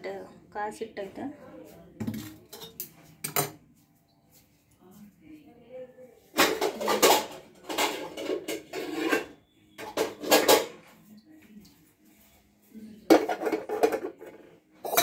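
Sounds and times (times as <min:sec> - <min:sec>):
pots and utensils clattering: 0:02.0 - 0:03.6, 0:06.3 - 0:10.9, 0:13.0 - 0:15.0.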